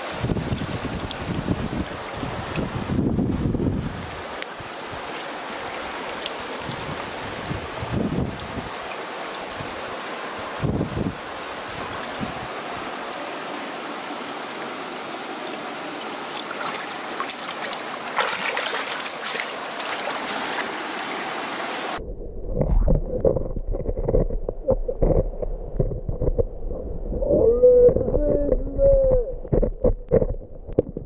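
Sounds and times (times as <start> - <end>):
stream rippling over gravel: 0.0 - 22.0
muffled underwater rumble: 22.0 - 31.0
water knocking against camera: 22.6 - 26.5, 27.8 - 31.0.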